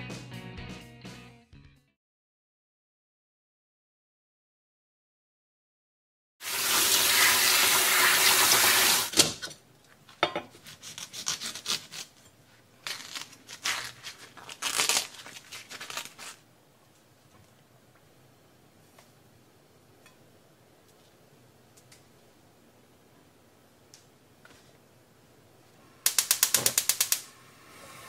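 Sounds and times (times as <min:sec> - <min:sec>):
water running from a tap: 0:06.4 - 0:09.1
knife rasping through husk: 0:10.5 - 0:16.4.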